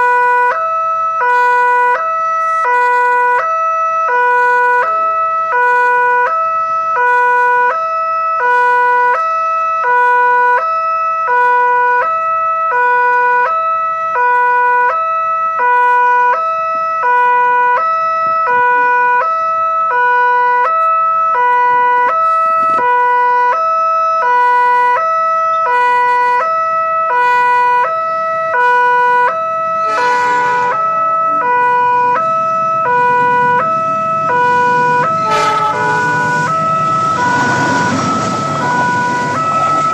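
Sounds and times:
two-tone crossing alarm: 0:00.0 - 0:39.9
approaching train rumble: 0:29.6 - 0:39.9.

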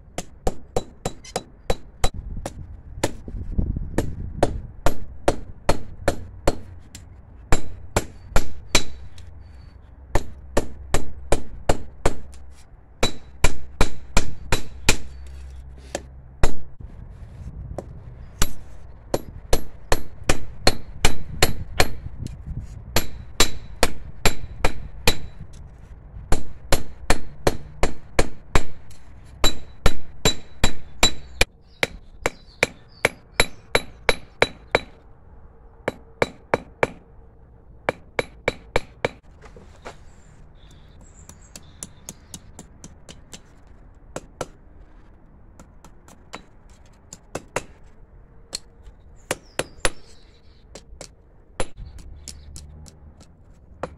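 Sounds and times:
hammer striking steel on anvil: 0:35.9 - 0:37.0.

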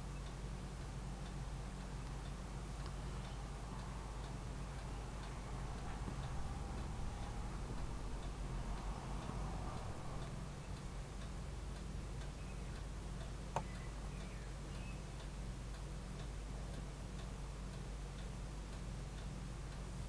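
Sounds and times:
faint even ticking: 0:00.0 - 0:20.0
low electrical hum: 0:00.0 - 0:20.0
faint bird chirps: 0:12.3 - 0:12.8, 0:13.6 - 0:15.2.

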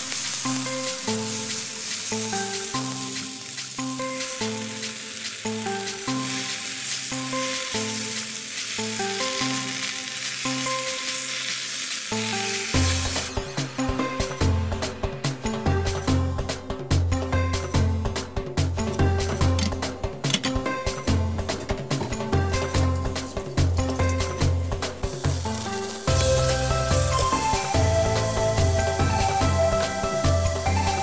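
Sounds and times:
spinach sizzling in a frying pan: 0:00.0 - 0:13.4, 0:22.4 - 0:31.0.

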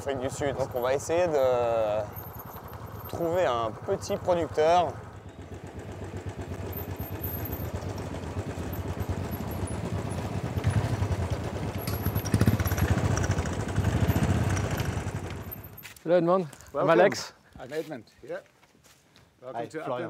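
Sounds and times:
motorcycles running at low speed: 0:00.0 - 0:15.8.

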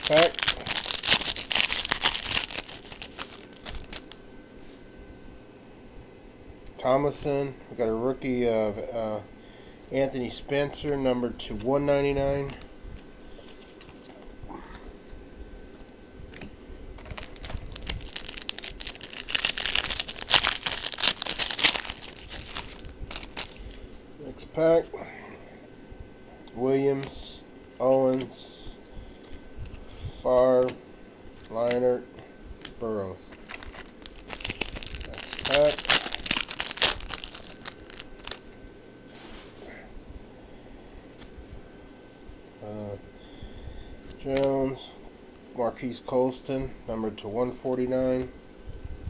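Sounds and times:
cards and foil wrapper rustling: 0:00.0 - 0:04.2, 0:17.0 - 0:24.0, 0:33.3 - 0:38.5
faint handling sounds: 0:32.6 - 0:39.8.

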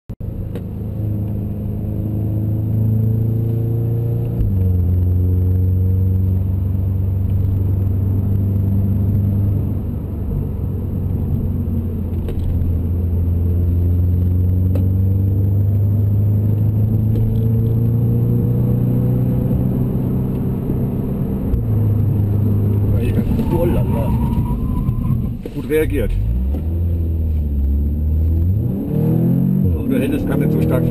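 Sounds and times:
car engine revving: 0:00.3 - 0:30.9.

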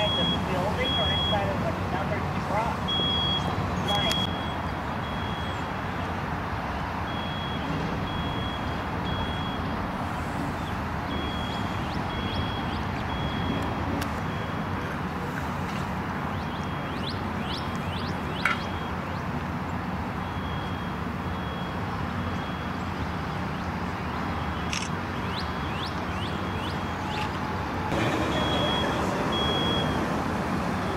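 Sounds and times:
engines idling: 0:00.0 - 0:30.9
high electronic beeping: 0:02.9 - 0:05.6, 0:10.6 - 0:14.8, 0:28.0 - 0:30.0.

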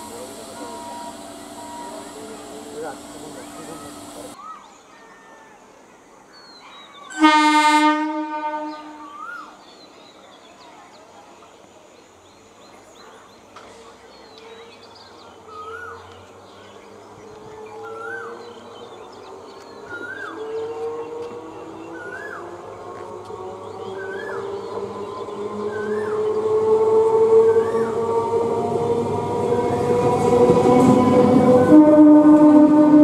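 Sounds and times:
train running: 0:00.0 - 0:04.4, 0:16.2 - 0:33.0
train horn blast: 0:07.2 - 0:09.1, 0:24.0 - 0:33.0.

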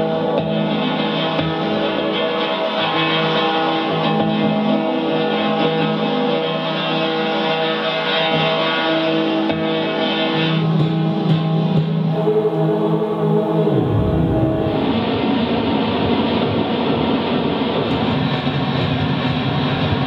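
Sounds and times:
dense droning music: 0:11.8 - 0:20.0.

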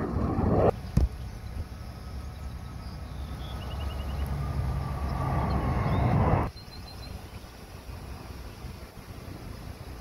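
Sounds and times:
jet engines flying past: 0:00.0 - 0:06.5.

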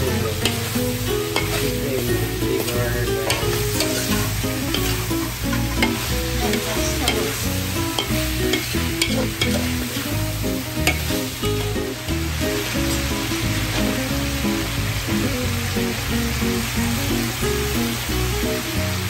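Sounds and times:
light melody: 0:00.0 - 0:19.0
meat sizzling in a wok: 0:00.0 - 0:19.0
metal spoon scraping a pan: 0:00.2 - 0:01.8, 0:02.5 - 0:10.1, 0:10.8 - 0:11.9, 0:12.6 - 0:13.9.

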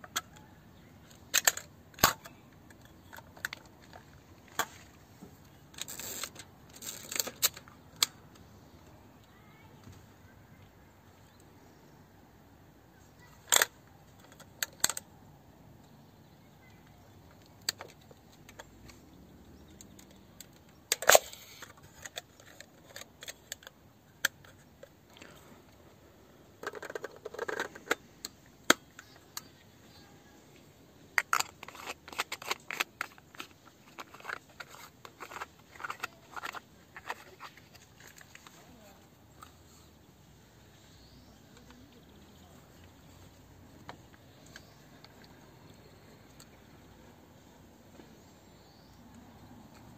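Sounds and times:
camera parts clicking: 0:01.1 - 0:04.8, 0:19.7 - 0:25.0, 0:26.6 - 0:29.6, 0:31.2 - 0:38.6.

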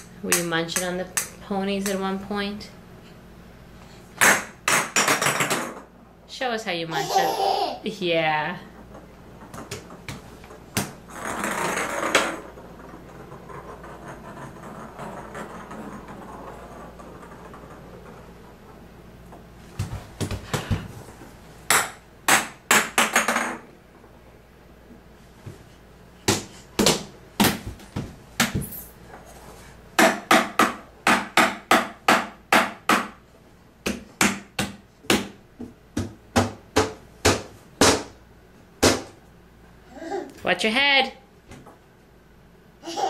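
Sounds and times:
hands smacking hardwood floor: 0:19.7 - 0:21.0, 0:26.2 - 0:28.8.

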